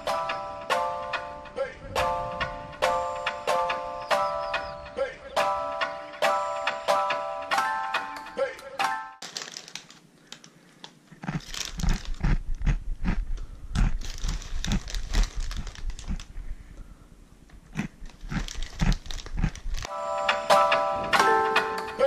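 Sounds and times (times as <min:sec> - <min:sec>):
plastic bag crinkling: 0:09.2 - 0:12.8, 0:13.8 - 0:16.4, 0:17.8 - 0:19.9.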